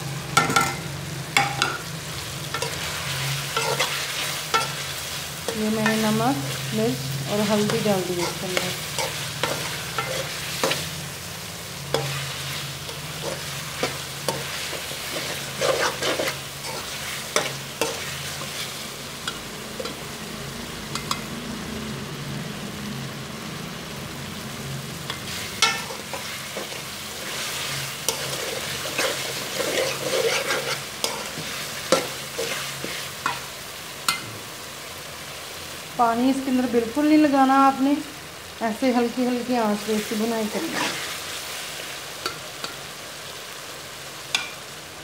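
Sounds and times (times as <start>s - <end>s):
masala sizzling in oil: 0.0s - 45.0s
metal spatula scraping pan: 0.4s - 5.0s, 7.3s - 10.9s, 11.9s - 18.8s, 25.1s - 33.5s, 40.5s - 41.2s.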